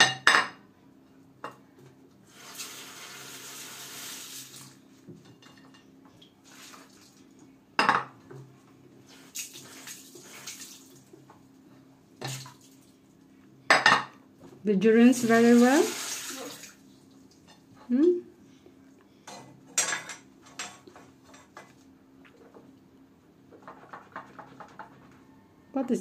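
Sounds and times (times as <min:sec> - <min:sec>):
washing noise: 0:02.2 - 0:05.1, 0:06.1 - 0:07.6, 0:08.4 - 0:11.5, 0:12.1 - 0:13.2, 0:14.9 - 0:17.5
dishes clinking in sink: 0:05.1 - 0:06.0, 0:07.8 - 0:08.5, 0:13.7 - 0:14.2, 0:19.3 - 0:21.8.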